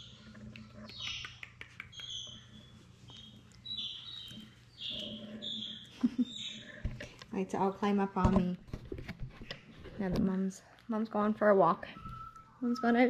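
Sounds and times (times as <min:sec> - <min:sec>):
puppies squeaking: 0:00.0 - 0:06.8.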